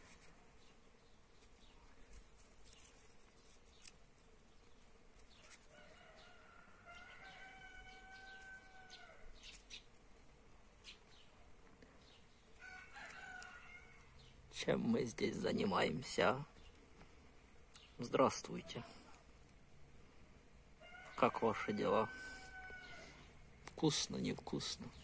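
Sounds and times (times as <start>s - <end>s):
faint rooster crowing: 5.3s - 9.6s, 12.6s - 14.4s, 20.7s - 23.4s.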